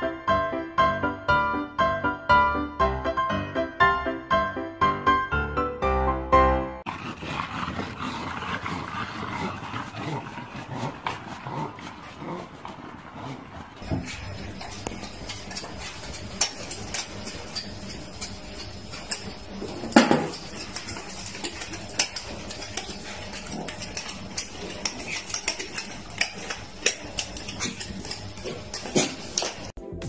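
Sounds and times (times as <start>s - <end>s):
dog claws clicking on tiles: 6.9s - 29.8s.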